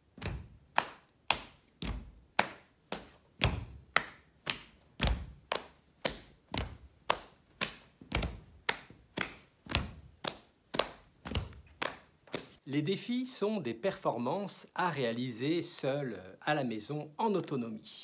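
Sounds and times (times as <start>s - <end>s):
foot stomps on wooden floor: 0.1s - 0.6s, 1.8s - 2.2s, 3.0s - 12.6s
hand slaps on body: 0.2s - 12.6s.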